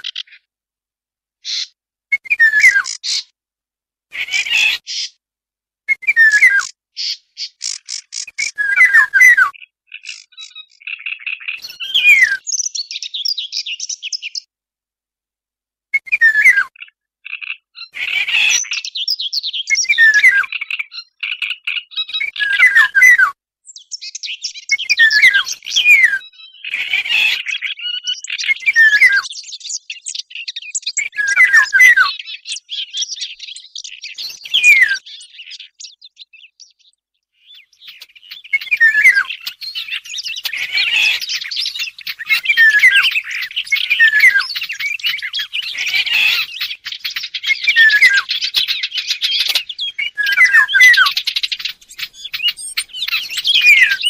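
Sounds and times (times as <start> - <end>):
bird chatter: 0.0 - 0.5, 1.4 - 3.3, 4.1 - 5.2, 6.3 - 14.5, 16.7 - 23.0, 23.7 - 54.0
bird calls from a lure: 1.4 - 3.3, 6.0 - 14.4, 37.4 - 54.0.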